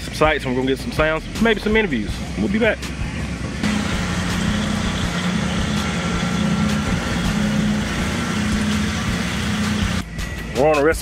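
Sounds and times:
machine drone with low hum: 0:02.1 - 0:10.5.

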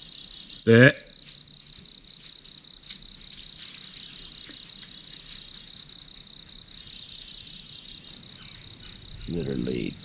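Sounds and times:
crickets chirring: 0:00.0 - 0:10.0
faint ticks: 0:01.2 - 0:07.5.

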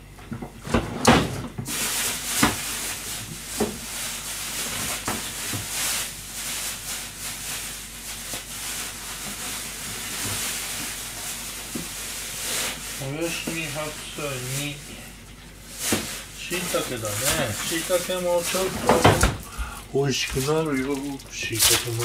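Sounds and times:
steady hiss: 0:05.6 - 0:22.0.

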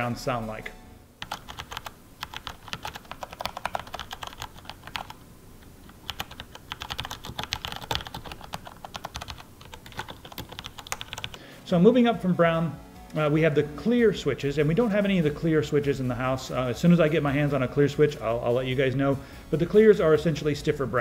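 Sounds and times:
mechanical keyboard typing: 0:01.2 - 0:05.2, 0:05.8 - 0:11.4.

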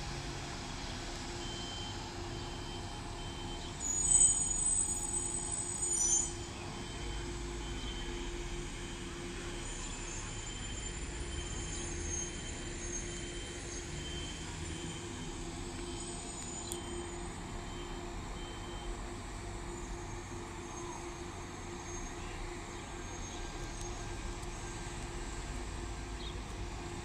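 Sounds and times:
bus engines idling: 0:00.0 - 0:27.0
high-pitched brake squeal: 0:01.5 - 0:15.2
high warning beep: 0:13.9 - 0:19.0.

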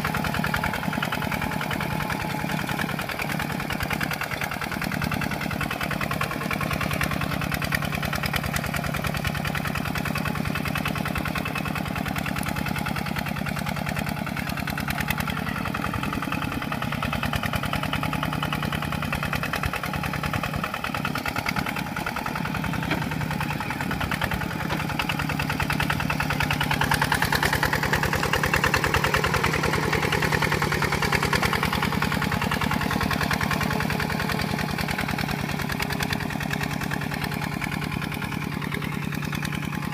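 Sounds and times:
diesel engine chugging: 0:00.0 - 0:39.9
tiller churning mud: 0:00.0 - 0:39.9.

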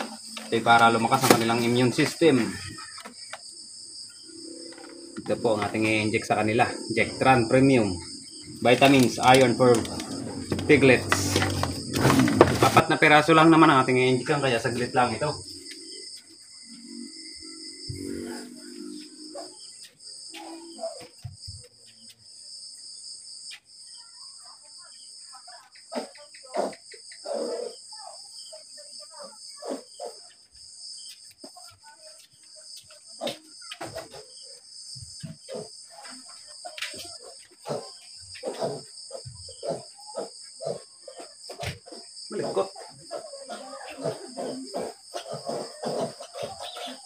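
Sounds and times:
crickets chirring: 0:00.0 - 0:47.0
knocks scuffles and rustles: 0:08.8 - 0:12.9.

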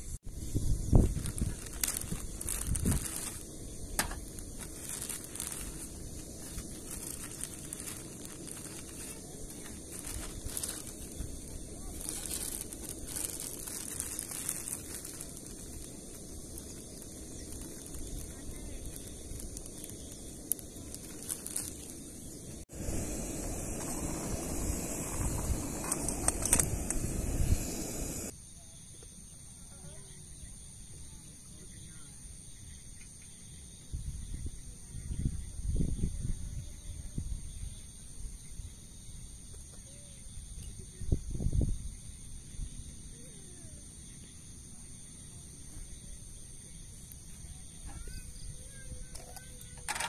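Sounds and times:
outdoor background: 0:00.0 - 0:50.0
gas stove burning: 0:00.4 - 0:28.3
plastic bag crinkling: 0:01.0 - 0:24.6
items set down on table: 0:04.0 - 0:04.3.

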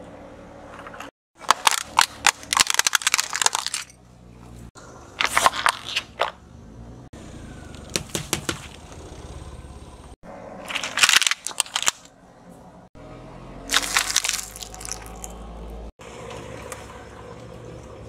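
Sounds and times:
tyre crushing plastic objects: 0:01.4 - 0:03.9, 0:10.7 - 0:12.1, 0:13.7 - 0:15.1.

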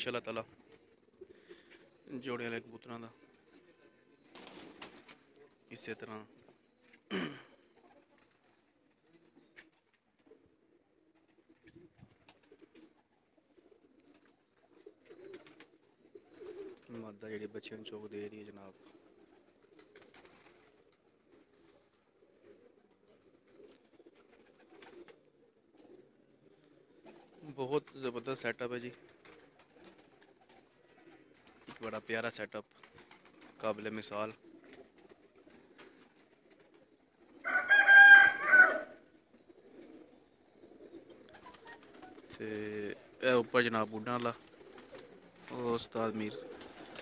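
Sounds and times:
pigeons cooing: 0:00.0 - 0:47.0
rooster crowing: 0:37.4 - 0:39.0.

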